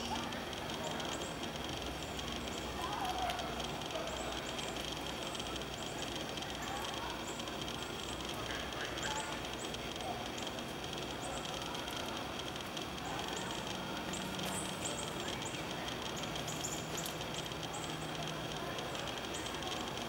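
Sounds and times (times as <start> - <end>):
outdoor background hiss: 0.0 - 20.0
small birds chirping: 0.0 - 20.0.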